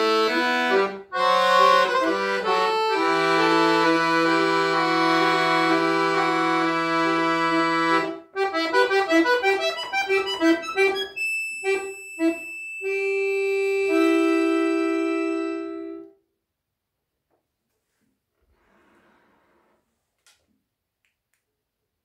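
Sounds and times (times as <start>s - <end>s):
accordion playing: 0.0s - 16.2s.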